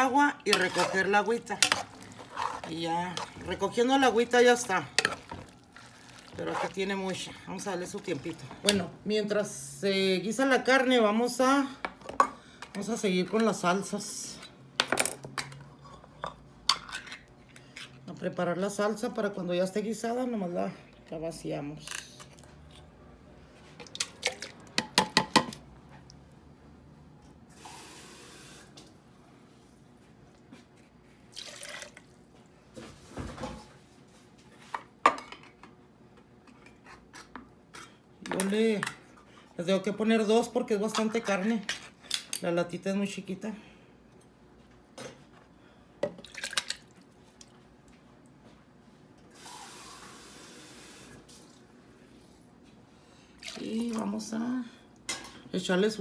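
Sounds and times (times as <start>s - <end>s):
liquid pouring into jar: 5.2s - 6.8s, 31.3s - 32.1s
liquid splashing into jar: 31.4s - 32.1s, 46.1s - 47.5s, 53.4s - 54.0s.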